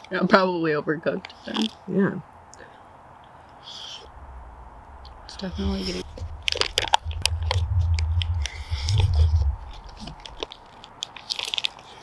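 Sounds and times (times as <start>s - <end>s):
low rumble: 4.1s - 10.8s
foil pouches crinkling: 10.0s - 12.0s.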